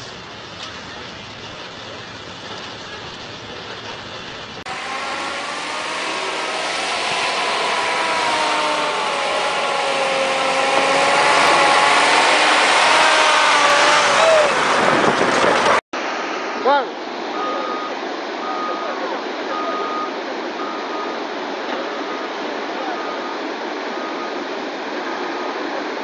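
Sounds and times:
dump truck engine droning: 0.0 - 15.8
outdoor noise: 0.0 - 26.0.

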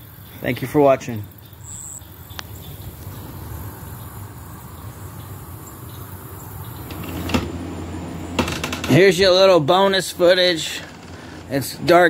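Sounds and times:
crickets chirring: 0.0 - 9.1.

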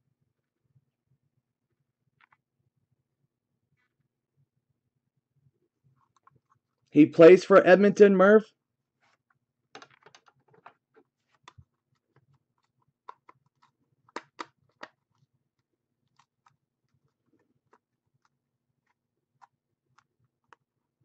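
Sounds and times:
hands handling things at a desk: 9.0 - 20.7.

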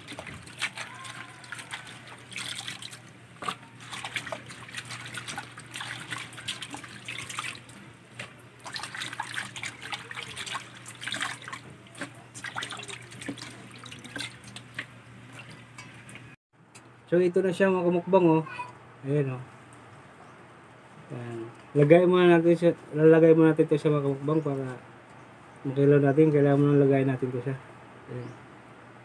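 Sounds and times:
hands splashing leaves in water: 0.0 - 15.6.

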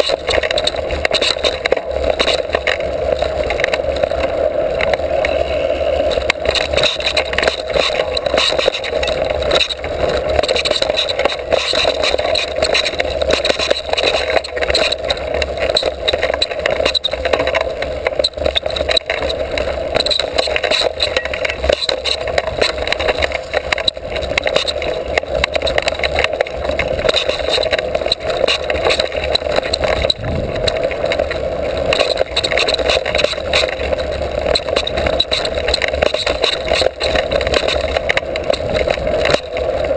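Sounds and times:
bike rattling and knocking: 0.0 - 39.9
tyres rolling over dirt: 0.0 - 39.9
wind rushing: 30.0 - 30.6.

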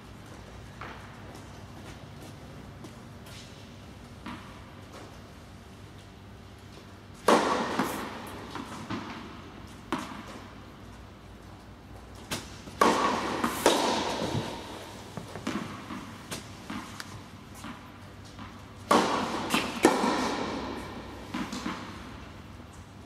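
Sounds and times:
tennis balls bouncing on court: 0.2 - 5.4, 6.8 - 10.6, 11.4 - 22.8
rackets hitting tennis balls: 0.2 - 6.1, 6.8 - 22.9.

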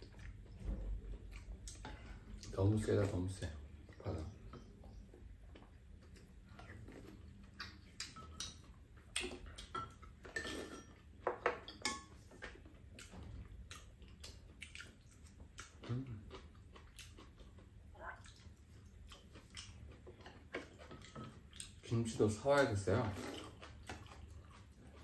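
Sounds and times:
utensils clinking on ceramic bowls: 9.7 - 12.2.

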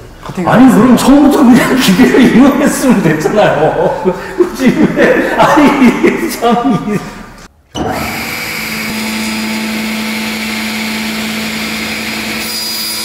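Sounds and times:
table saw humming: 7.8 - 13.0.

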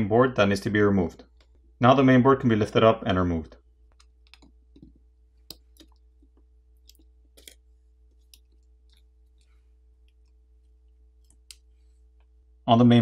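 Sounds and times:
faint steady hum: 0.0 - 13.0
faint clicks and taps: 1.3 - 1.6, 3.9 - 12.4.

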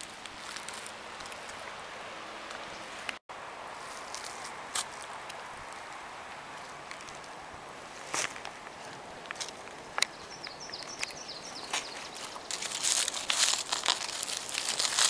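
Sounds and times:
dry leaves crackling and rustling: 0.0 - 1.7, 3.7 - 5.9, 6.5 - 10.0, 10.8 - 15.0
sharp twig clicks: 9.3 - 15.0.

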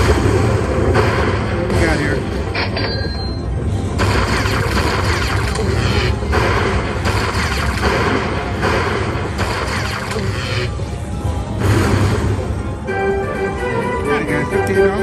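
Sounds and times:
electric lightning crackles and booms: 0.0 - 2.5
slot machine game music: 0.0 - 15.0.

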